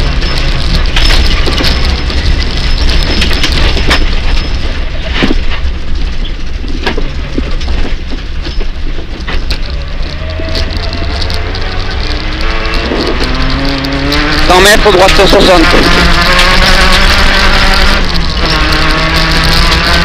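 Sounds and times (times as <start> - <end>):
car engine rumble: 0.0 - 20.0
gravel striking car underbody: 0.0 - 20.0
road noise: 0.0 - 20.0.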